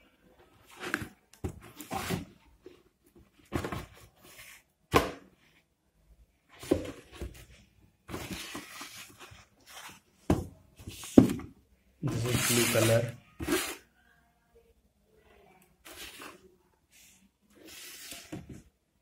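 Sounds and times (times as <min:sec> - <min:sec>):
cardboard rustling and scraping: 0:00.5 - 0:04.6, 0:06.5 - 0:13.8.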